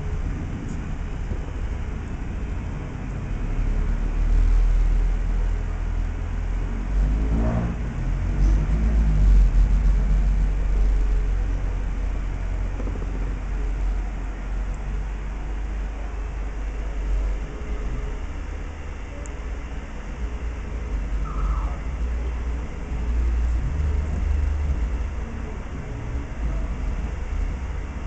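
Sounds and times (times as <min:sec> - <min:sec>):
steady low rumble: 0:00.0 - 0:28.0.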